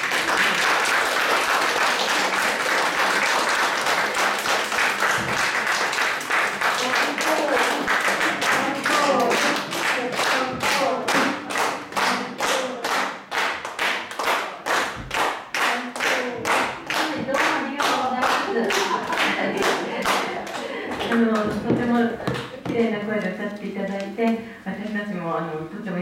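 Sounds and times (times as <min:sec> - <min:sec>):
audience clapping in rhythm: 0:00.0 - 0:22.9
voices: 0:06.8 - 0:13.1, 0:15.6 - 0:26.0.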